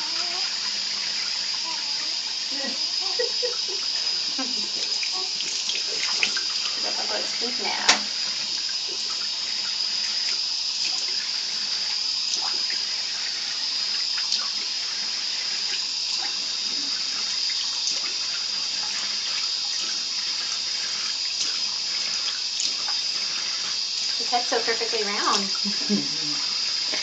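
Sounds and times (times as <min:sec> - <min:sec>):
water splashing: 0:00.0 - 0:11.3
tap water running into sink: 0:00.0 - 0:27.0.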